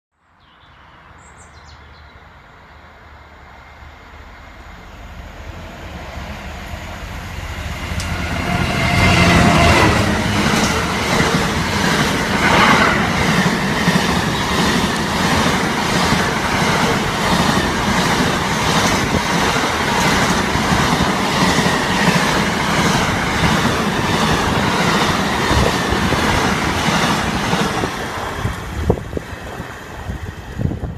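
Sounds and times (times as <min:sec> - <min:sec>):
diesel locomotive engine passing: 0:02.2 - 0:30.9
train wheels clicking over rail joints: 0:07.8 - 0:29.8.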